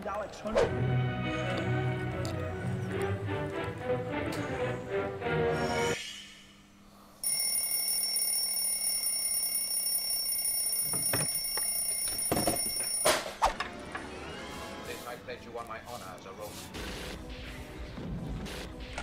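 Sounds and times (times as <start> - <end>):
music: 0.4 - 6.0, 13.5 - 19.0
alarm clock ringing: 7.2 - 13.4.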